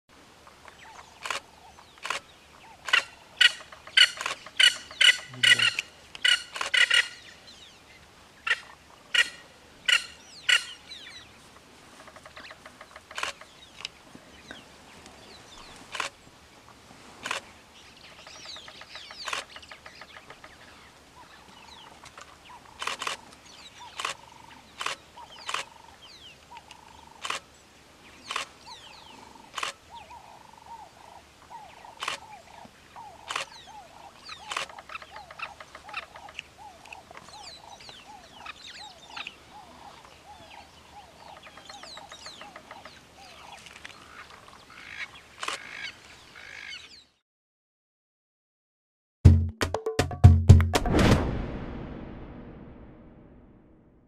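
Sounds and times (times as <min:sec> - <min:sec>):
faint background bird calls: 0:00.3 - 0:47.2
harsh bird calls: 0:00.8 - 0:07.8, 0:18.0 - 0:22.9, 0:28.2 - 0:47.2.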